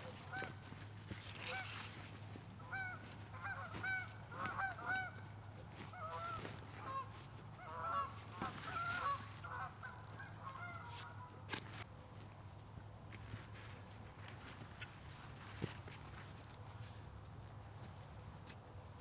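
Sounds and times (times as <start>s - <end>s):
geese honking: 0.0s - 0.7s, 1.3s - 11.5s.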